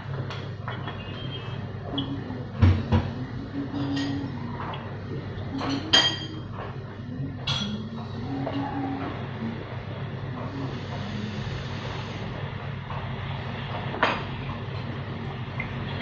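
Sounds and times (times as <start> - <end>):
steady low hum: 0.0 - 16.0
pots and dishes clinking: 0.2 - 6.8, 7.4 - 9.1.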